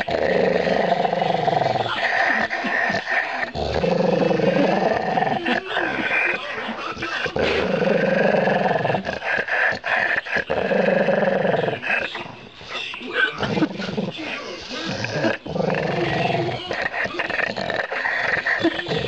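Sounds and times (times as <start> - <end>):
dog growling: 0.0 - 19.0.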